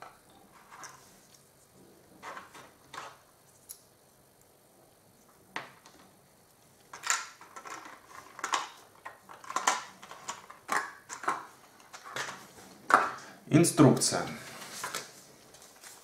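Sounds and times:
plastic packaging clicks and crinkles: 6.8s - 13.2s.

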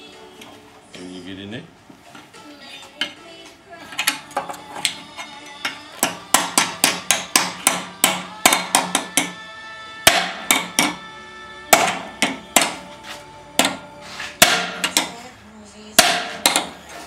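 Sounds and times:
hammer ringing on metal: 10.1s - 11.0s, 11.7s - 12.8s, 14.4s - 15.2s, 16.0s - 16.8s.

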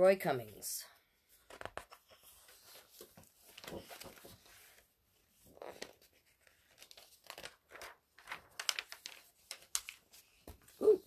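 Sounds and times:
book pages turning: 1.4s - 10.8s
paper crackles: 1.5s - 10.8s.

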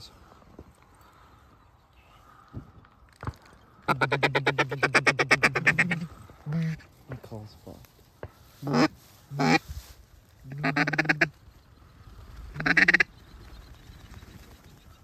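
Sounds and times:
duck quacking: 3.9s - 6.8s, 8.6s - 9.6s, 10.5s - 11.3s, 12.6s - 13.1s.

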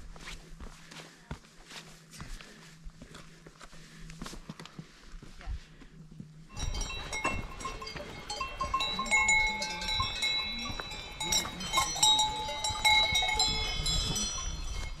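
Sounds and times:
livestock bells ringing: 6.5s - 15.0s.

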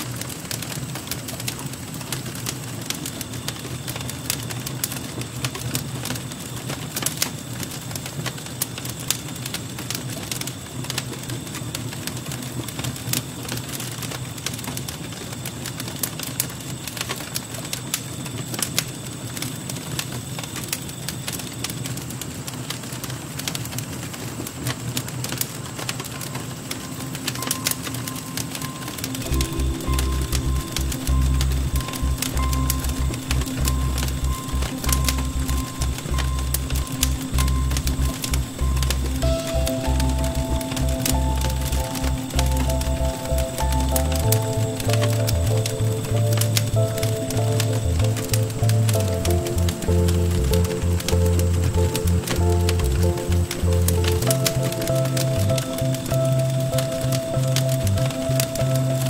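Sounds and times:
embers crackling and popping: 0.0s - 59.0s
low rumble: 29.2s - 56.2s.

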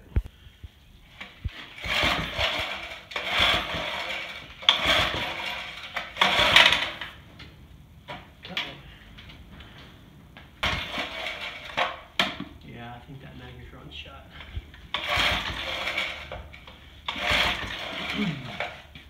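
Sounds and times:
engine cranking: 1.1s - 7.5s, 10.6s - 12.5s, 14.2s - 19.0s
recoil starter cord whirring: 1.1s - 7.5s, 10.6s - 12.4s, 14.3s - 19.0s
loose starter shroud clattering: 1.1s - 9.4s, 10.6s - 12.6s, 14.3s - 19.0s.

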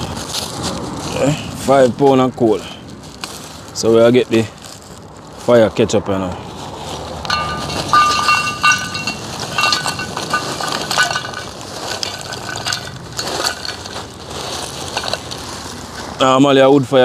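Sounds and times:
charcoal clinking into metal rim: 7.2s - 14.0s.

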